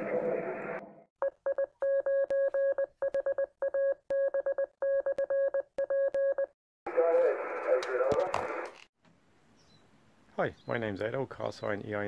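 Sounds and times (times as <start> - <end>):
morse code beeps: 1.2 - 6.6.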